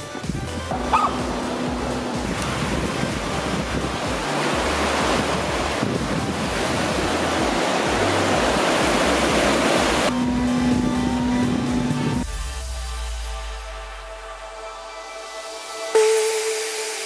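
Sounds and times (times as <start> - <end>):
white water rushing: 0.0 - 12.1.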